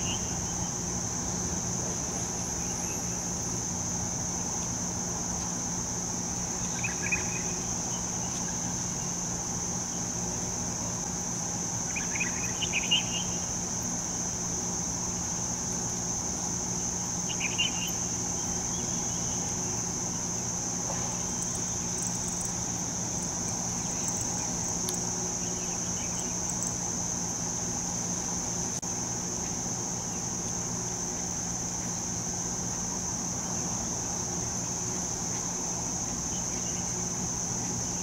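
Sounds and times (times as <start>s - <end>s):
faint chirps: 0.0s - 0.9s, 6.5s - 9.2s, 11.9s - 13.5s, 17.2s - 26.8s
insects trilling: 0.0s - 38.0s
low steady hum: 0.0s - 38.0s.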